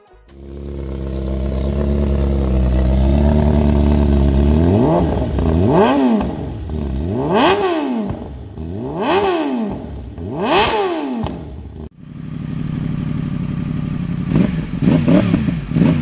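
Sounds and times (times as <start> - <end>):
motorcycle engine idling and revving: 0.3 - 16.0.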